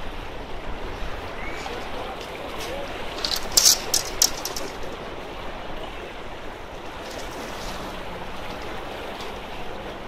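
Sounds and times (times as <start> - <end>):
small waves washing against rocks: 1.8 - 5.2, 6.8 - 8.8.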